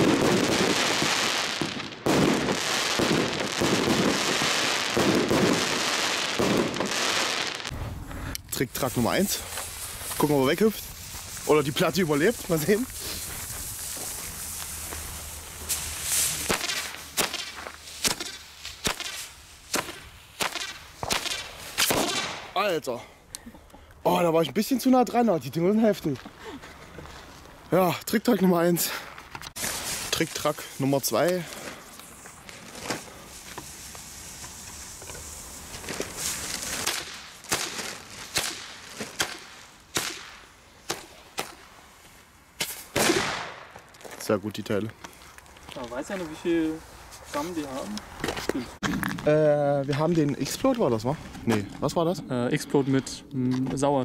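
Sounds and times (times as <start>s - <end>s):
firecracker blast: 0.0s - 8.2s, 12.2s - 22.6s, 35.6s - 41.7s, 42.6s - 43.8s
firecracker cracks: 0.0s - 8.4s, 12.2s - 22.6s, 29.5s - 41.8s, 42.6s - 44.1s.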